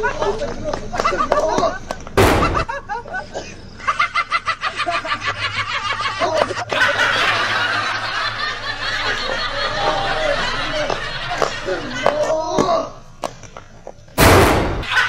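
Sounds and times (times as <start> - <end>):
voices laughing and calling out: 0.0 - 13.4, 14.8 - 15.0
man laughing hard: 1.0 - 12.6.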